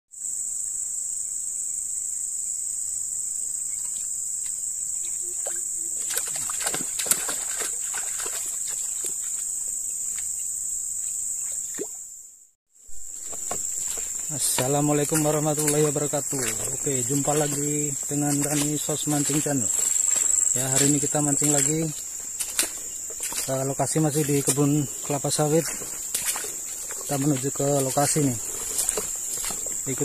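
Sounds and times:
insect drone: 0.1 - 30.0
fish splashing in water: 5.4 - 9.4.

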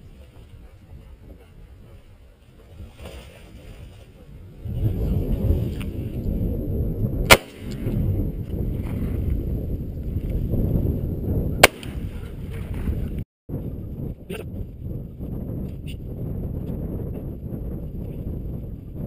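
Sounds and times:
shotgun shots: 7.3 - 7.9, 11.6 - 12.1.

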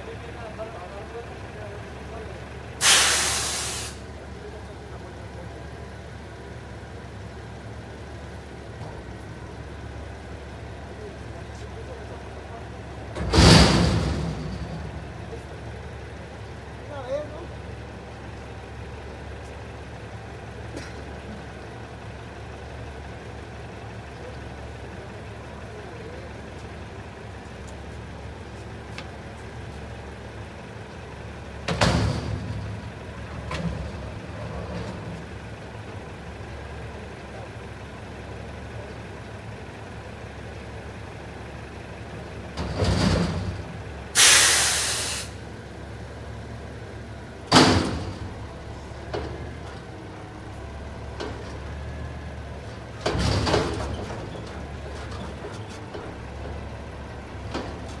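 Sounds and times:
garbage truck idling: 0.0 - 58.0
hiss of released air: 2.8 - 4.1, 44.2 - 45.4
loud bangs and clatters: 13.2 - 15.2, 42.6 - 43.8, 47.5 - 48.4, 53.0 - 55.4.

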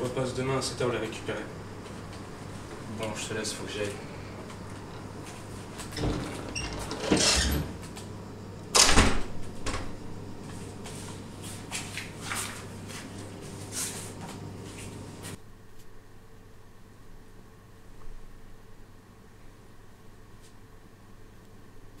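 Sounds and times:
door latching shut with thud: 8.8 - 9.9.

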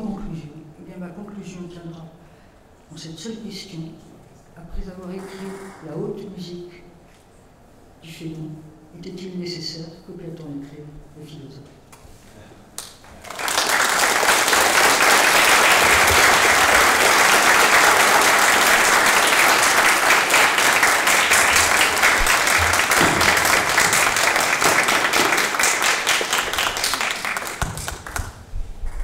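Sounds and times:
audience applauding: 13.1 - 28.4.

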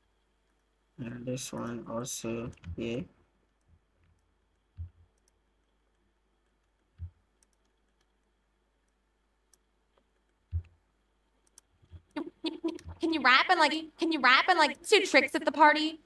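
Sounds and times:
computer mouse clicks: 3.5 - 10.8, 11.4 - 12.2.

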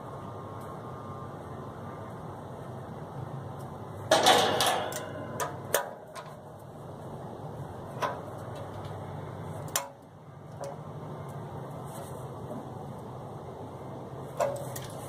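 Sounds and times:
metal-on-metal clicks: 4.1 - 6.4
short metal rattle: 4.1 - 6.4.

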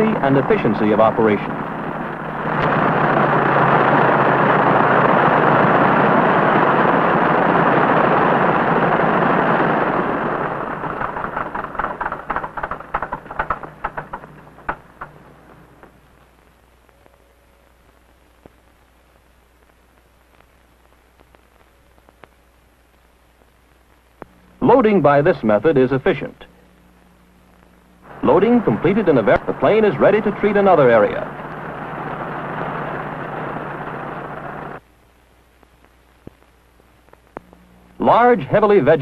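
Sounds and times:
propeller aircraft engine running: 0.0 - 16.1, 28.0 - 34.8
engine pops and crackles: 0.0 - 16.6, 28.1 - 34.8
faint hum: 0.0 - 39.0.

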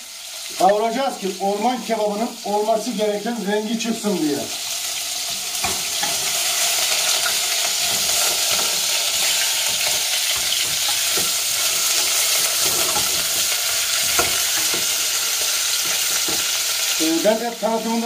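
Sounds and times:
meat sizzling in oil: 0.0 - 18.0
wooden spoon scraping pot: 5.6 - 16.6.

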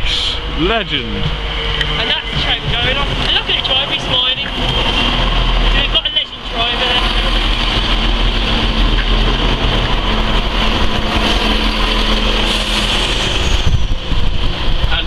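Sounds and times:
low traction hum: 0.0 - 15.0
train wheels rumbling: 0.0 - 15.0.

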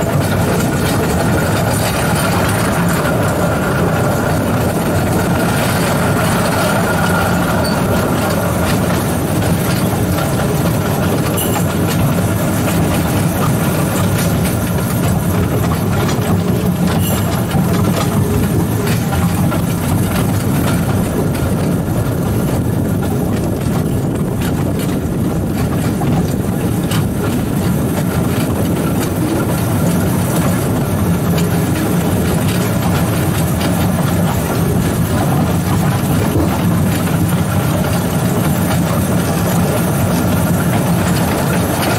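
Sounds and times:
locomotive running drone: 0.0 - 41.9.

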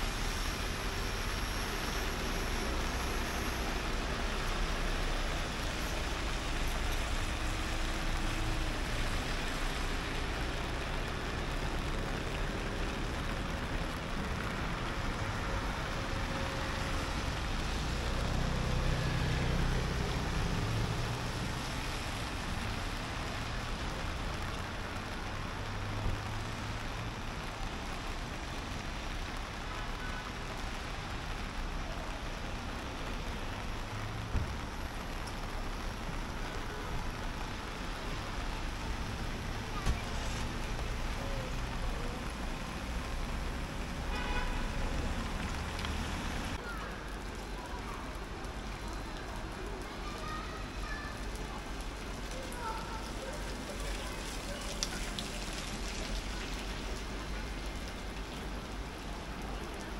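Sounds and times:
steady traffic hiss: 0.0 - 59.9
vehicles passing: 0.0 - 59.9.

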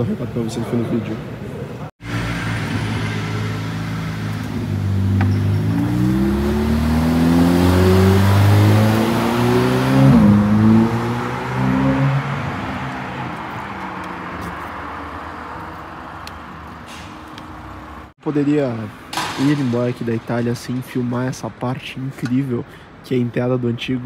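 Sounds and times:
car engine revving past: 2.0 - 15.5.

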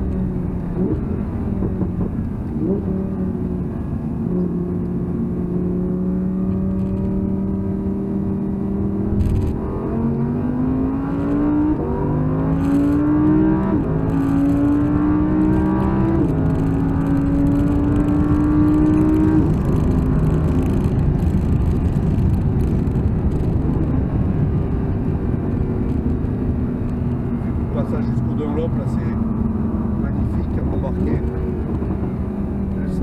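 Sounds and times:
car engine revving under throttle: 0.0 - 33.0.

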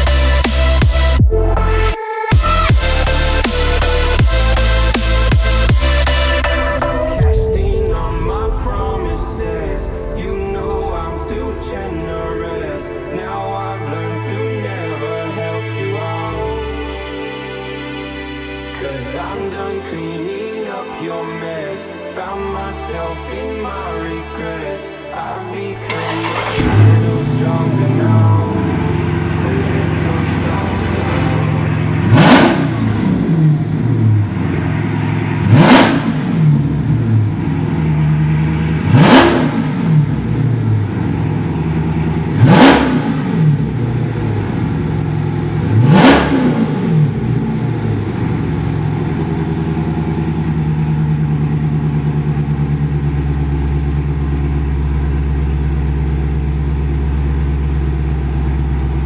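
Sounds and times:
car engine idling and revving: 0.0 - 59.0.

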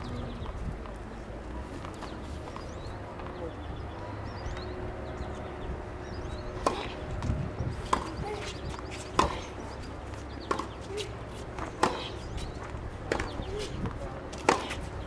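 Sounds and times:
racket hitting tennis ball: 6.6 - 7.2, 7.8 - 15.0.

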